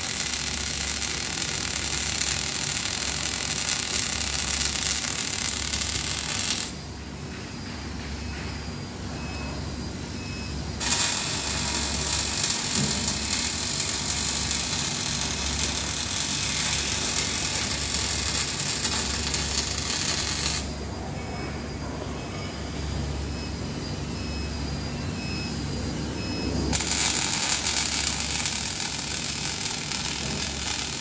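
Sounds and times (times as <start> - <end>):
welding arc crackling hiss: 0.0 - 6.9, 10.8 - 20.8, 26.7 - 31.0.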